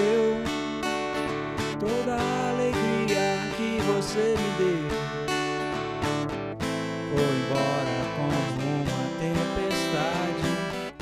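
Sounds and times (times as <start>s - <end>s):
person singing: 0.0s - 0.7s, 1.8s - 5.2s, 7.0s - 11.0s
strummed guitar: 0.0s - 11.0s.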